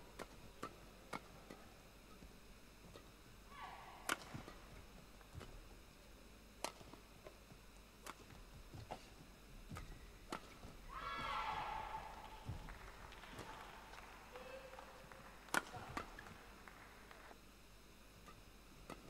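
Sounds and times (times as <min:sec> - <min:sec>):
racket hitting shuttlecock: 0:00.2 - 0:01.7, 0:02.8 - 0:05.6, 0:06.6 - 0:07.0, 0:08.0 - 0:09.1, 0:09.7 - 0:17.2, 0:18.3 - 0:19.0.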